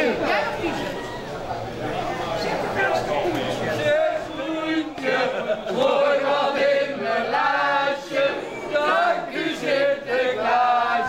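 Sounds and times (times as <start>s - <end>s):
group of people singing: 3.7s - 11.0s.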